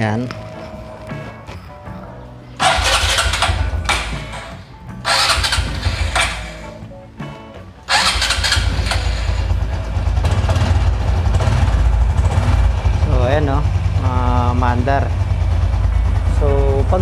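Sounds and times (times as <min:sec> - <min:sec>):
motorcycle engine idling: 0:02.1 - 0:06.9, 0:07.9 - 0:17.0
motorcycle engine cranking: 0:02.6 - 0:06.8, 0:07.9 - 0:14.0.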